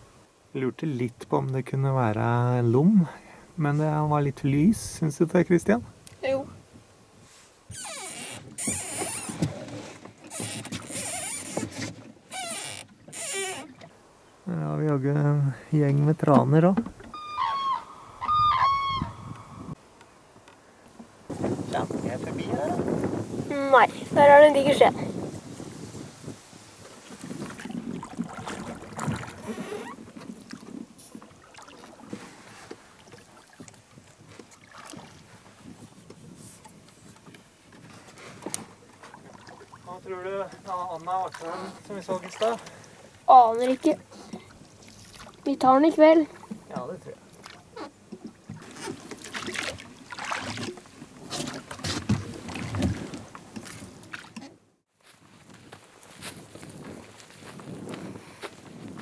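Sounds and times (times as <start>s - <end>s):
paddle strokes splashing water: 6.2s - 14.3s, 15.7s - 54.8s
oars in metal oarlocks: 7.7s - 14.0s, 43.4s - 54.6s.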